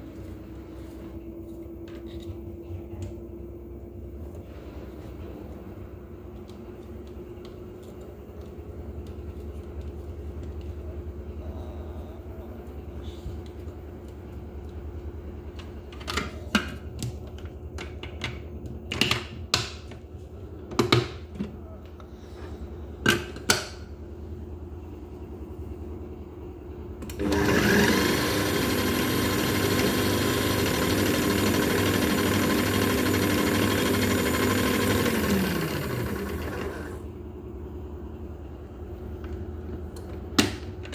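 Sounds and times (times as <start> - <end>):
food processor motor running: 27.0 - 37.1.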